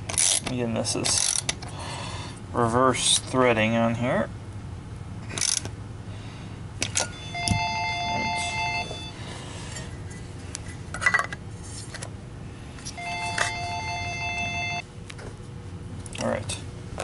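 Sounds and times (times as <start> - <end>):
electronic telephone ringing: 7.1 - 9.2, 13.0 - 14.8.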